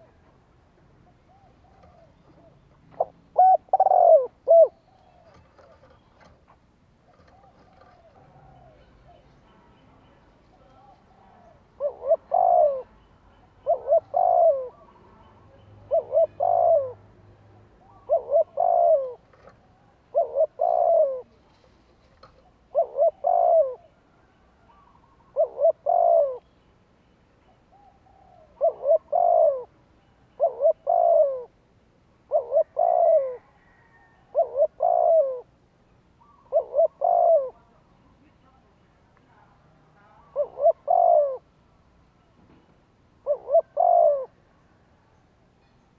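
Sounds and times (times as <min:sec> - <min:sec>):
dove cooing: 0:01.0 - 0:09.4, 0:10.5 - 0:15.2, 0:15.8 - 0:17.1, 0:17.8 - 0:21.4, 0:22.4 - 0:26.5, 0:27.6 - 0:31.6, 0:32.2 - 0:35.6, 0:36.2 - 0:37.7, 0:40.2 - 0:41.5, 0:43.2 - 0:44.4.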